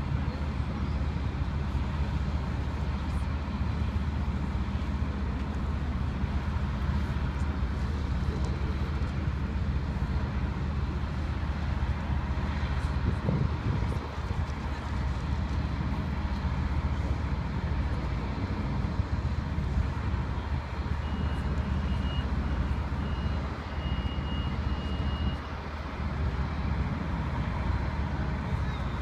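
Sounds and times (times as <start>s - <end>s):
road traffic rumble: 0.0s - 29.0s
truck engines: 0.0s - 29.0s
wind buffeting microphone: 12.6s - 20.8s.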